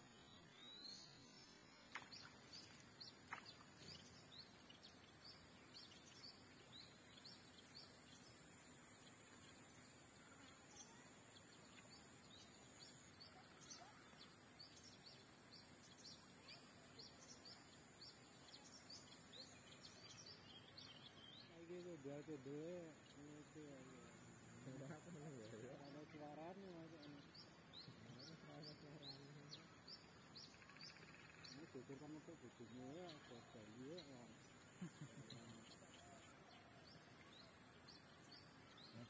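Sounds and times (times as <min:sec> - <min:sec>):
steady high hiss: 0:00.0 - 0:39.0
bird chirps: 0:22.9 - 0:39.0.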